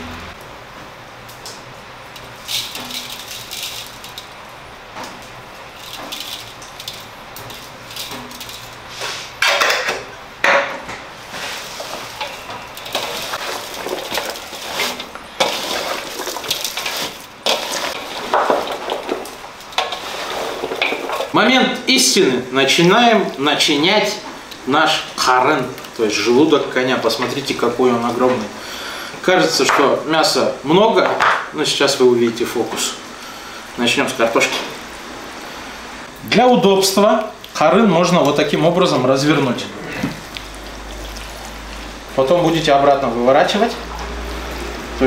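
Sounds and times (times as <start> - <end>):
metal shaker and dishes clinking: 2.2 - 4.4, 5.8 - 10.0, 11.4 - 21.4
knocks and rustles: 4.9 - 21.4.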